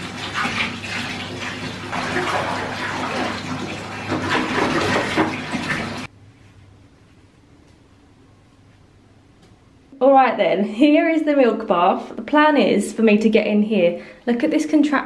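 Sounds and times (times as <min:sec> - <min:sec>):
water splashing and churning: 0:00.0 - 0:06.1.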